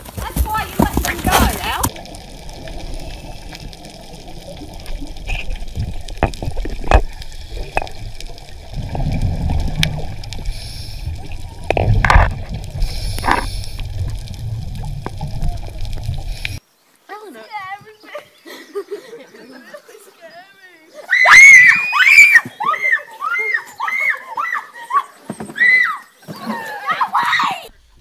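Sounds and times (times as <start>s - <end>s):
underwater swirling and gurgling: 1.6s - 16.6s.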